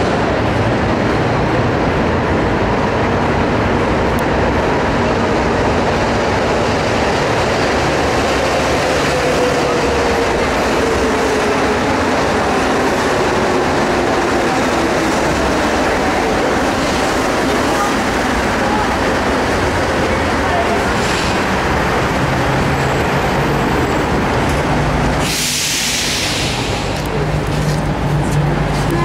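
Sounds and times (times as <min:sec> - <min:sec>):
train running rumble: 0:00.0 - 0:29.0.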